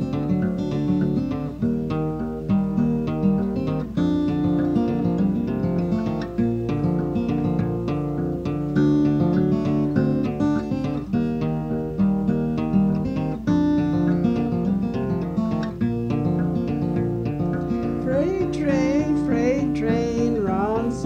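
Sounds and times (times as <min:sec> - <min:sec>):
fingerpicked acoustic guitar: 0:00.0 - 0:21.0
person singing: 0:17.9 - 0:21.0.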